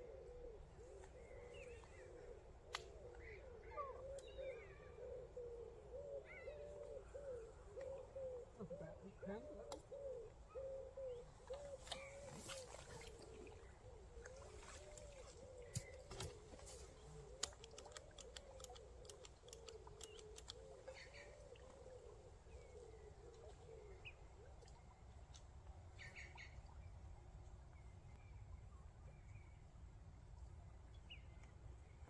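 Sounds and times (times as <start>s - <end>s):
faint bird calls: 0.0s - 25.0s
light clicks: 17.2s - 21.1s.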